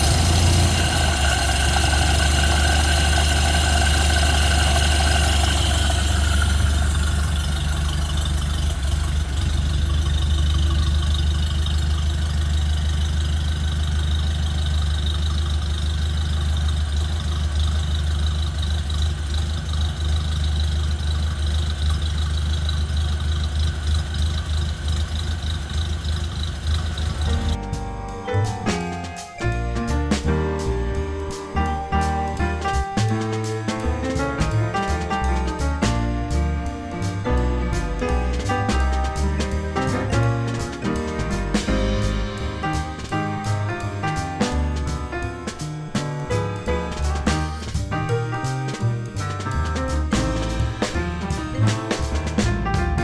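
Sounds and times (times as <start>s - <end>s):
car engine idling: 0.0s - 53.0s.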